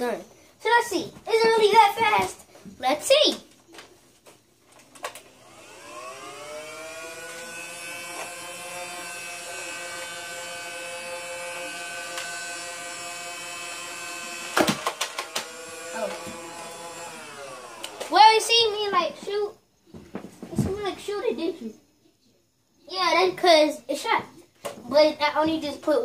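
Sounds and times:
flywheels whining: 0:04.7 - 0:19.4.

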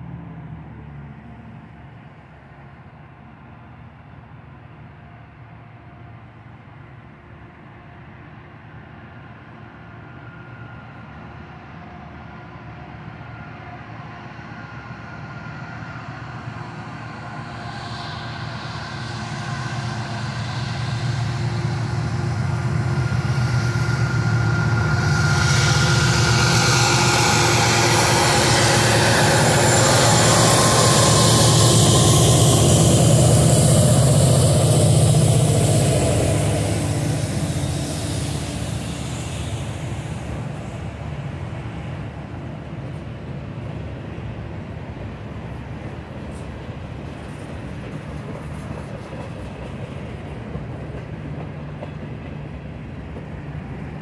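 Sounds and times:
train wheels rushing on rails: 0:00.0 - 0:54.0
diesel engines rumbling: 0:16.4 - 0:41.4.

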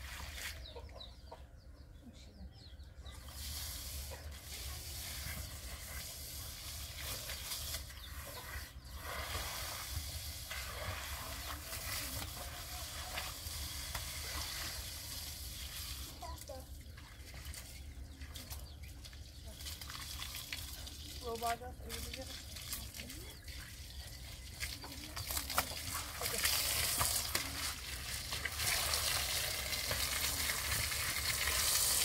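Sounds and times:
chickens clucking: 0:00.3 - 0:03.4, 0:08.0 - 0:09.2.

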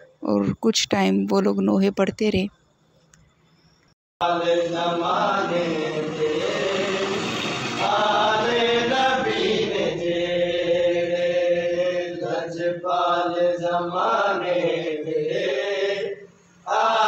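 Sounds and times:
voices chanting an elegy: 0:04.2 - 0:17.0.

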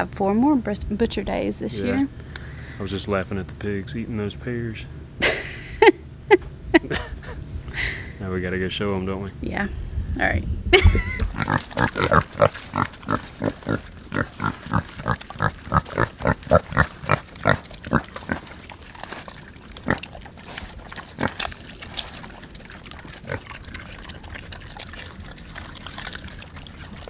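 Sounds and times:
pigs chewing: 0:11.0 - 0:27.0.

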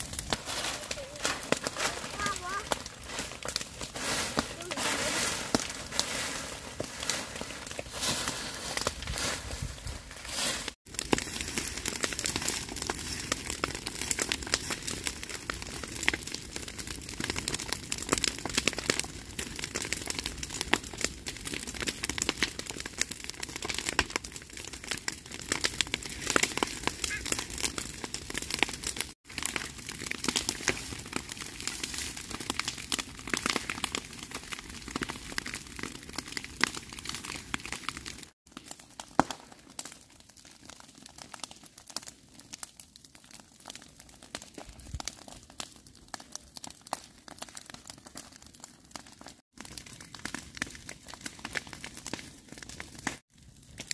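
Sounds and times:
dry grass crackling as it burns: 0:00.0 - 0:53.9
brush rustling stirred by pole: 0:00.3 - 0:10.8.

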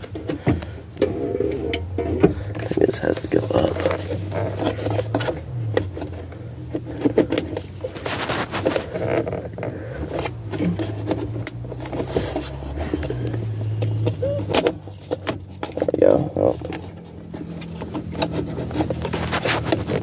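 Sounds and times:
plastic clicks creaks and knocks: 0:00.0 - 0:07.9, 0:08.6 - 0:20.0
fabric rubbing on microphone: 0:02.6 - 0:05.2, 0:07.6 - 0:09.5, 0:17.7 - 0:20.0.

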